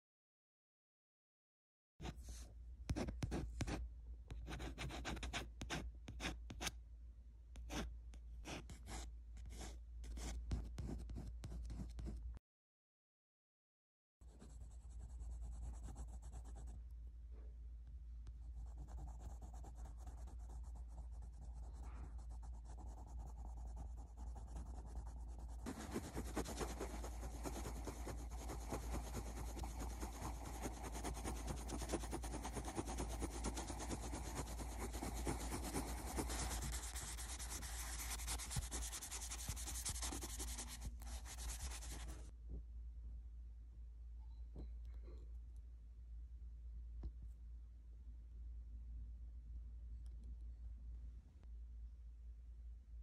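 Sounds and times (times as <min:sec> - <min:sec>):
pencil scratching on paper: 0:02.0 - 0:03.8, 0:04.4 - 0:06.7, 0:18.6 - 0:42.3.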